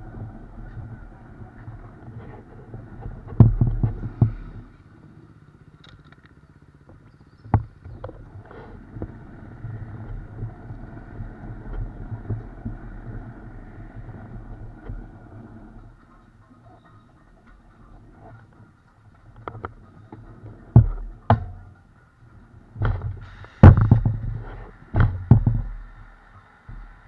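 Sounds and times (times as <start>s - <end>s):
motorcycle engine at low revs: 0.0s - 27.0s
sharp knocks: 24.9s - 25.7s.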